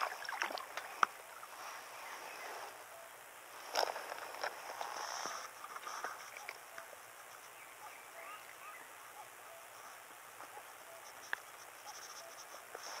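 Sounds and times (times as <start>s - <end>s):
insects trilling: 0.0s - 13.0s
small birds chirping: 6.2s - 13.0s.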